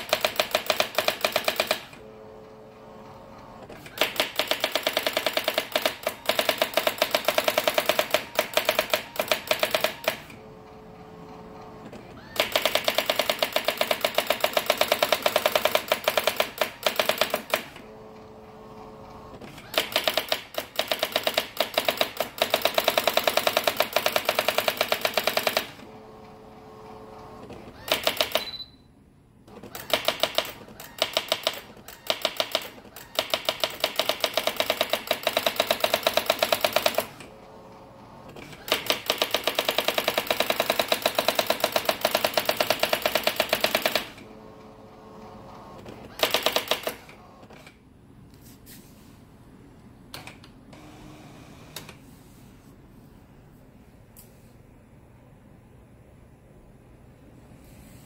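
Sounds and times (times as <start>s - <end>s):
typewriter daisywheel strikes: 0.0s - 1.9s, 3.8s - 10.3s, 12.4s - 17.7s, 19.7s - 25.8s, 27.8s - 28.6s, 29.6s - 37.2s, 38.5s - 44.2s, 46.1s - 47.0s
typewriter carriage hum: 0.0s - 28.6s, 29.4s - 47.8s
short high beep: 28.4s - 28.9s.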